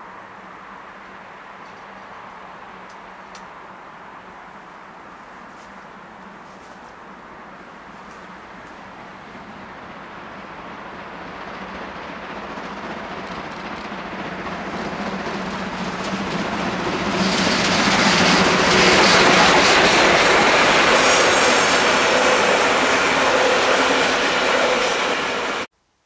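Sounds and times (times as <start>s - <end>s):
steam locomotive exhaust beating: 7.8s - 25.7s
wheel clatter on rails: 9.9s - 25.7s.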